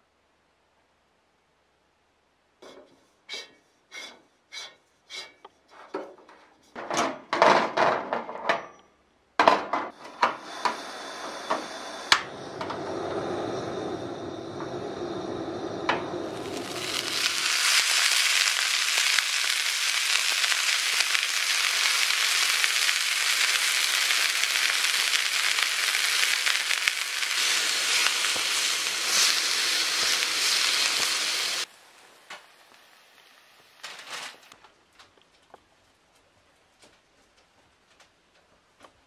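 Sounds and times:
meat sizzling in a skillet: 15.9 - 34.4.

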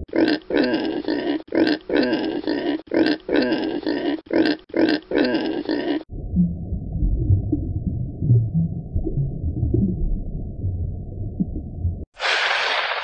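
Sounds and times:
pig grunting: 0.0 - 6.1.

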